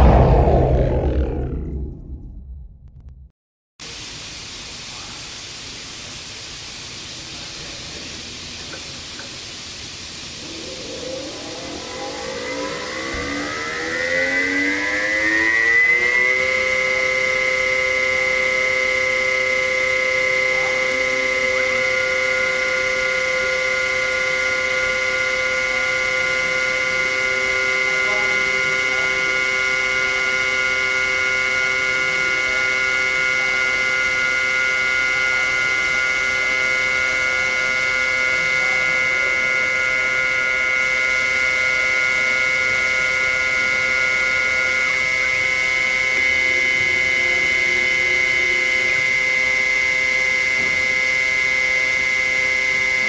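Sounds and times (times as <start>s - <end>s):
surface grinder whine: 0.0s - 3.0s, 9.2s - 53.0s.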